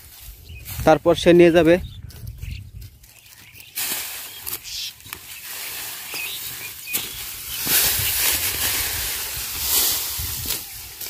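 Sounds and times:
dry straw rustling: 0:00.0 - 0:11.0.

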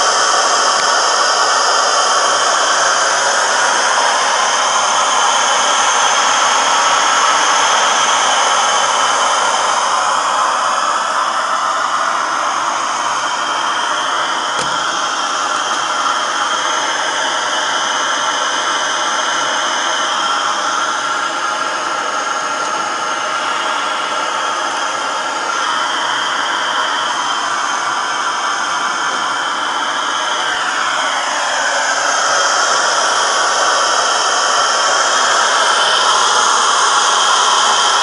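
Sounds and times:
gas stove burner hissing: 0:12.3 - 0:19.8.

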